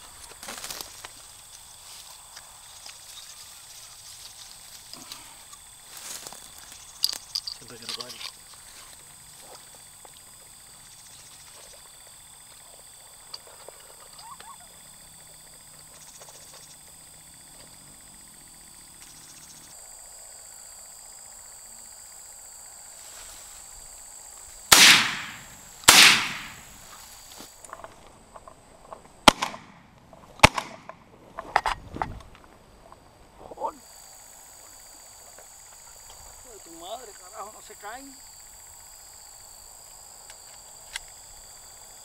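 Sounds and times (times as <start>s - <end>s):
high insect trilling: 0.0s - 27.7s, 33.5s - 42.0s
short sharp cracks: 24.7s - 26.7s, 29.3s - 31.0s
shotgun shots: 24.7s - 26.8s, 29.2s - 31.0s.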